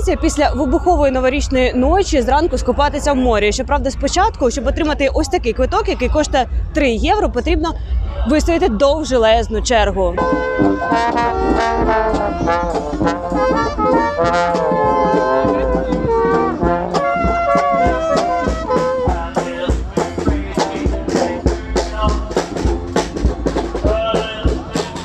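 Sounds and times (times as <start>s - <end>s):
drum beats: 0.0s - 25.0s
brass band playing: 10.1s - 25.0s.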